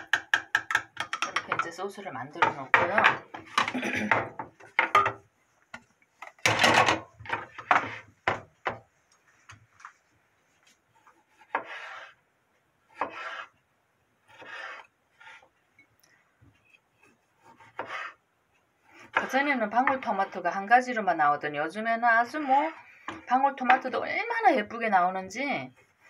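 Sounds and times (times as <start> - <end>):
knife slicing on wooden board: 13.0 - 13.5, 14.3 - 15.4, 17.4 - 18.2.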